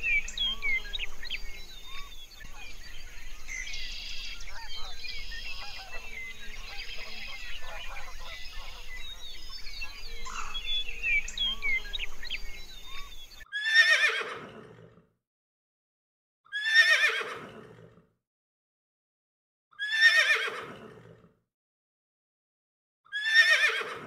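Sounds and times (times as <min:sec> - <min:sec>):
birds chirping: 0:00.0 - 0:13.4
horse whinnying: 0:13.5 - 0:14.4, 0:16.5 - 0:17.3, 0:19.8 - 0:20.6, 0:23.1 - 0:24.0.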